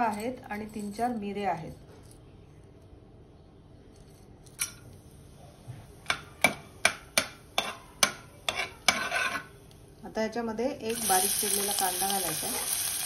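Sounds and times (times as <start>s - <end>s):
spoon clinking against pot: 6.1s - 9.5s
spices sizzling in hot oil: 10.8s - 13.0s.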